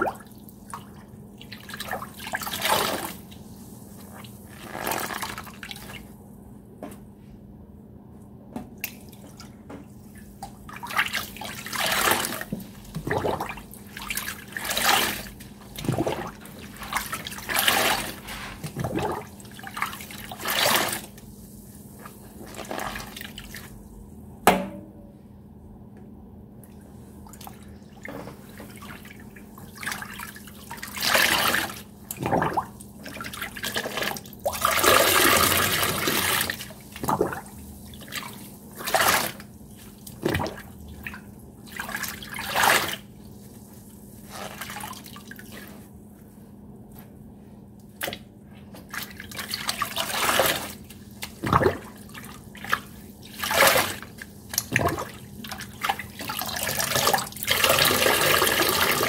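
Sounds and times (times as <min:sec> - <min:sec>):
sponges squeezed in water: 0:00.8 - 0:06.1, 0:10.4 - 0:23.8, 0:28.7 - 0:45.9, 0:47.8 - 0:59.0.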